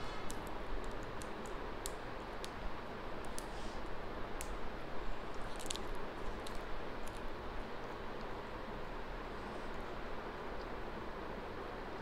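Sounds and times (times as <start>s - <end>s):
steady hiss: 0.0s - 12.0s
plastic packaging crinkling: 5.3s - 7.3s.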